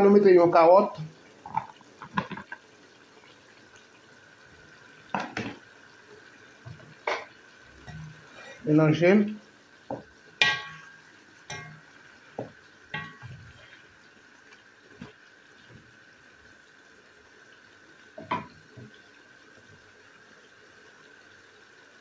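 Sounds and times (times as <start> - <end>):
spatula knocking and scraping pot: 9.9 - 10.9, 11.5 - 13.6.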